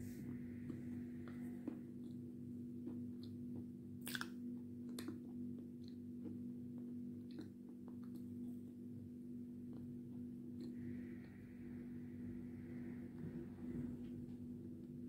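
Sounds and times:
steady low hum: 0.0s - 15.0s
wet mouth clicks and smacks: 4.0s - 5.2s.

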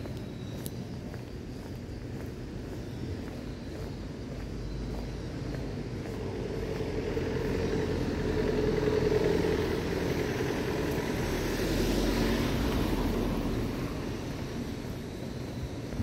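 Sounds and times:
motor vehicle passing: 5.6s - 15.1s.

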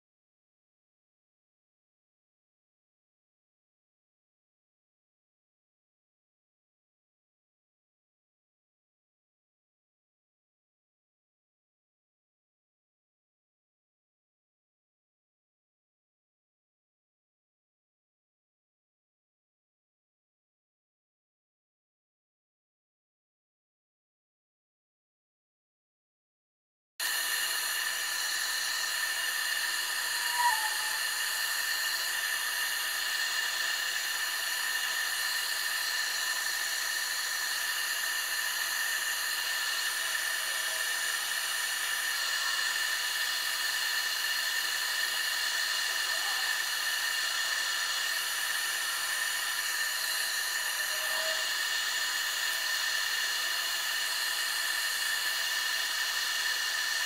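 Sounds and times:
wood lathe whining: 27.0s - 57.0s.

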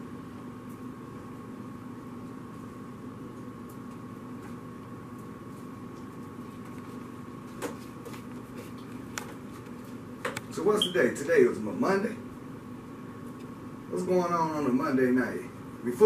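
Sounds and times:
faint high whine: 10.5s - 16.0s.

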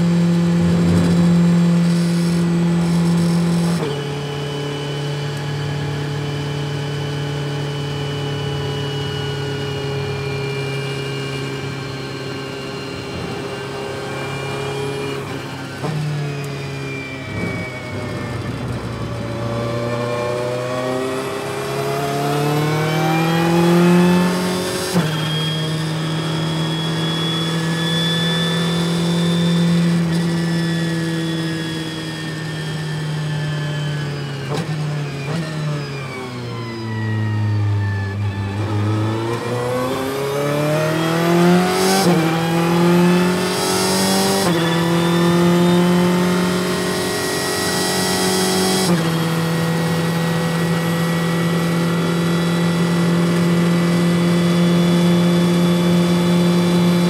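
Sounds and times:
race car engine revving: 0.0s - 6.4s, 38.3s - 57.0s.

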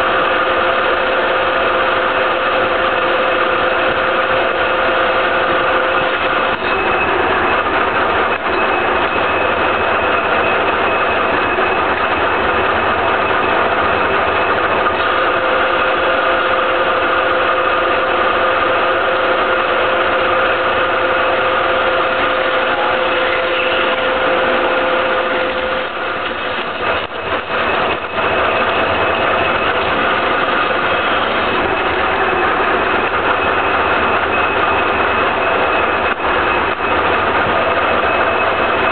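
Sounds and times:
lathe gear whine: 0.0s - 38.9s.

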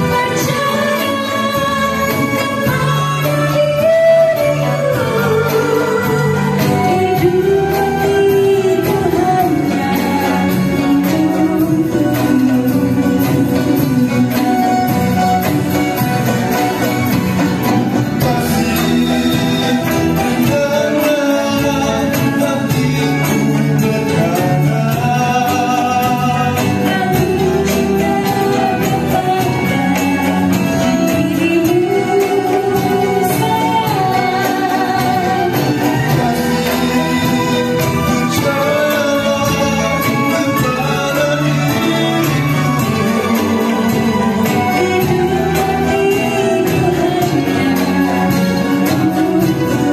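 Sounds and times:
live band playing: 0.0s - 49.9s
woman singing: 0.0s - 49.9s
man singing: 18.0s - 31.0s, 35.4s - 49.9s.

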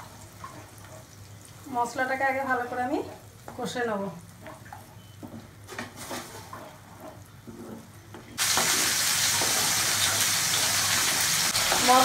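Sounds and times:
wooden spatula scraping: 5.7s - 12.0s
paste sizzling in hot oil: 8.4s - 12.0s.

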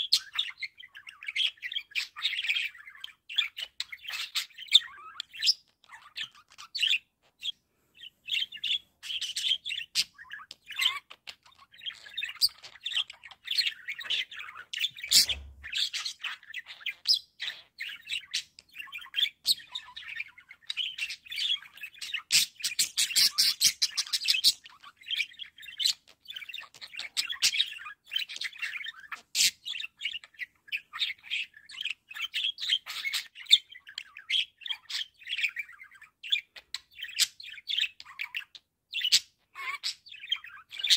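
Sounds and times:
budgerigars chattering and warbling: 0.0s - 40.9s.

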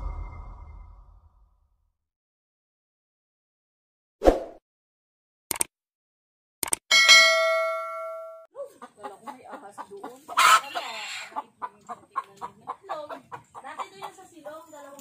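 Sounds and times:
bell chime: 6.9s - 8.5s
hens clucking: 8.6s - 14.9s
hen squawk: 10.3s - 11.4s.

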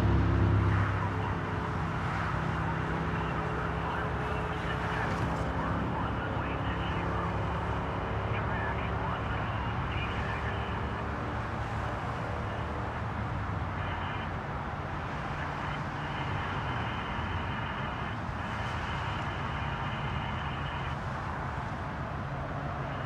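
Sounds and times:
road traffic noise: 0.0s - 23.0s.

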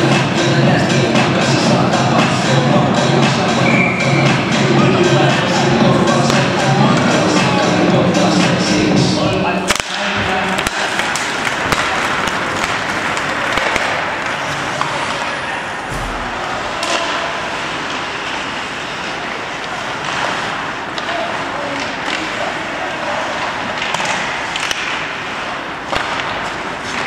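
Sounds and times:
arena music: 0.0s - 9.7s
hockey sticks hitting puck: 9.7s - 15.4s, 16.0s - 27.0s.

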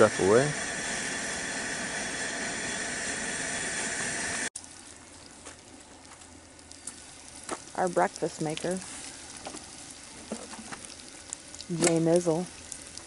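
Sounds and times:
camp stove burner hissing: 0.0s - 4.5s.

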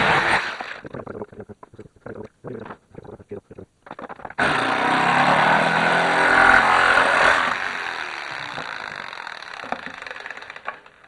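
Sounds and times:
jigsaw cutting plastic: 0.0s - 0.8s, 4.4s - 11.0s.

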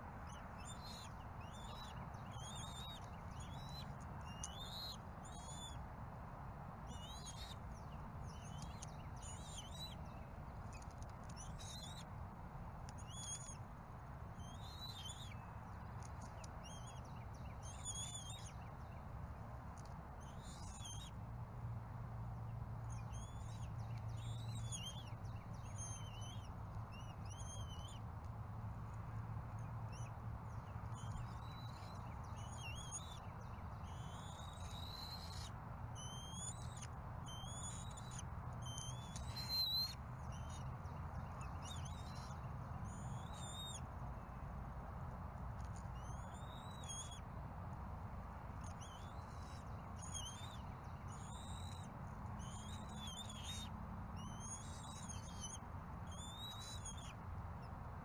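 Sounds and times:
small birds chirping: 0.0s - 57.8s.

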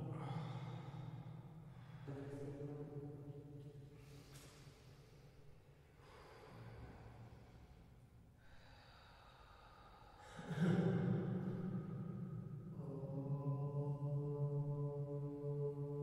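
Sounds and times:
deep voice chanting: 0.0s - 3.4s, 10.2s - 16.0s
faint vocal sounds: 0.0s - 7.8s, 8.4s - 16.0s
soft breaths: 3.9s - 10.7s.

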